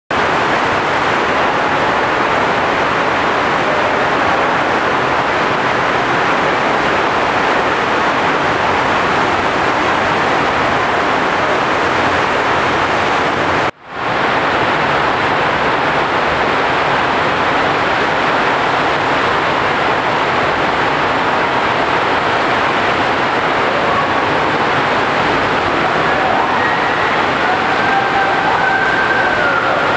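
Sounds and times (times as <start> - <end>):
rushing water from jets: 0.1 - 29.9.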